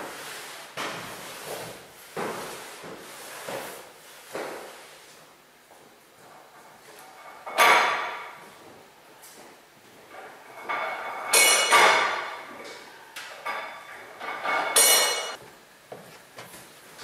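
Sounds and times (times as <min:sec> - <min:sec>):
sharp metallic clanks: 0:10.6 - 0:12.5, 0:13.5 - 0:15.4.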